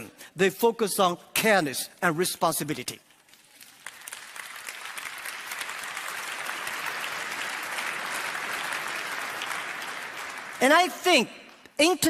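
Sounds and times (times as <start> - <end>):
audience applauding: 3.5 - 11.1.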